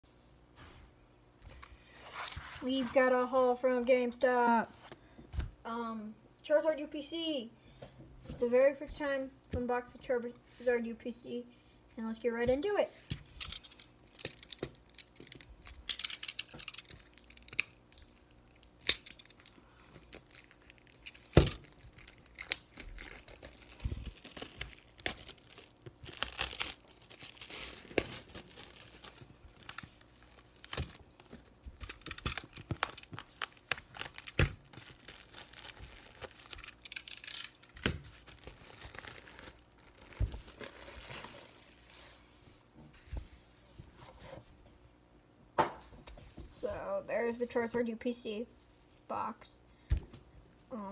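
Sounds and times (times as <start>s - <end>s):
shrink wrap crinkling and tearing: 13.3s - 42.2s.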